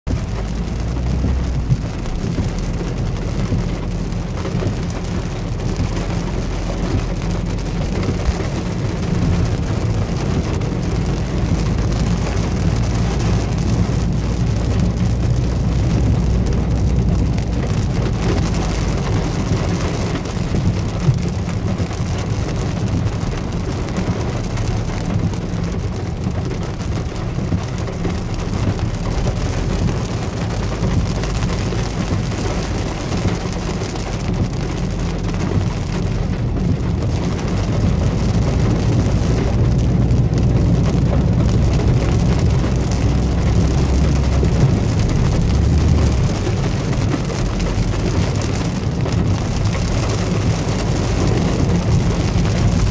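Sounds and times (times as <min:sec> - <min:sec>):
car engine and tyres rumbling: 0:00.0 - 0:52.9
heavy rain on car roof: 0:00.0 - 0:52.9.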